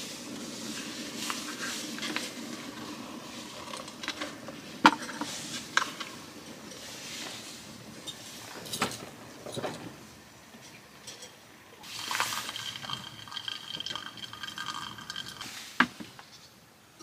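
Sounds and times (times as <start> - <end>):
faint ringing: 11.0 - 15.6
coffee trickling into metal cup: 11.8 - 15.8.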